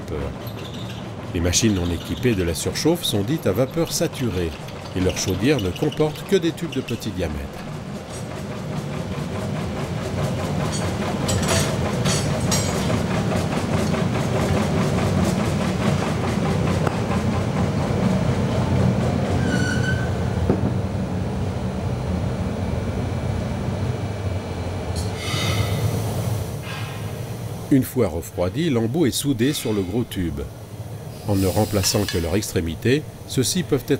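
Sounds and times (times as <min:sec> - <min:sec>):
forging machine running: 0:00.0 - 0:33.9
metallic clanks: 0:00.4 - 0:08.3, 0:10.6 - 0:13.0
high squeal: 0:19.4 - 0:20.3.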